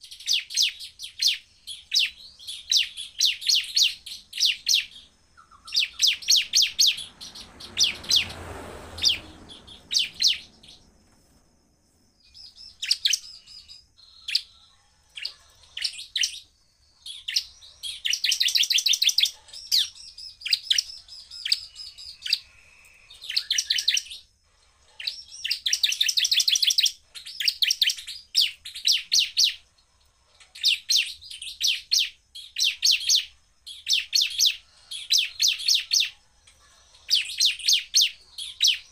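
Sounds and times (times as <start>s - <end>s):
bird singing fast high trills: 0.0s - 11.0s.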